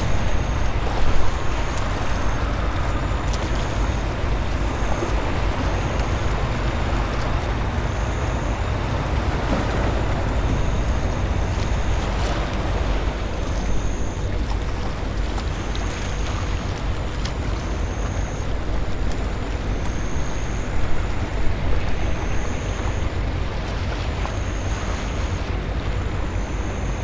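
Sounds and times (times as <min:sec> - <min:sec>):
wind rumble on microphone: 0:00.0 - 0:27.0.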